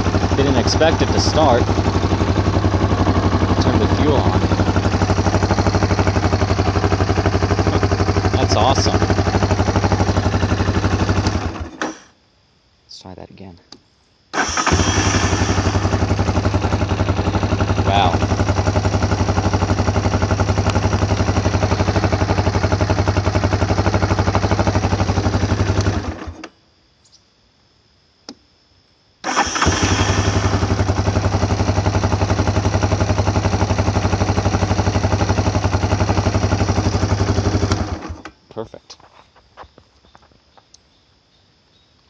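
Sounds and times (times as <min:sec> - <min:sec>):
atv engine idling: 0:00.0 - 0:12.0, 0:14.4 - 0:26.4, 0:29.3 - 0:38.4
electric starter cranking engine: 0:11.1 - 0:12.1, 0:14.4 - 0:16.2, 0:29.2 - 0:31.0.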